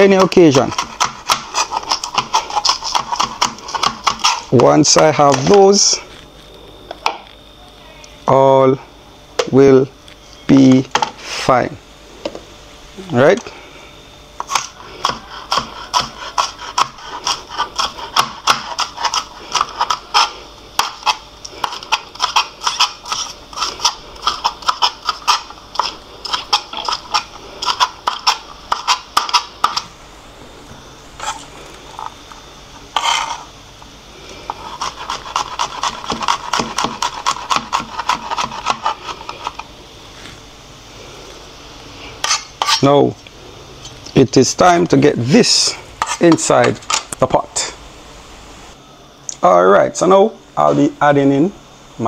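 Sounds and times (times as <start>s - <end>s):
knife scrape: 0.0s - 6.1s, 14.4s - 29.9s, 31.2s - 32.2s, 32.8s - 33.6s, 34.4s - 40.4s, 42.1s - 43.0s, 45.5s - 47.1s
knife chopping on cutting board: 0.7s - 4.4s, 14.4s - 19.2s, 34.8s - 38.9s.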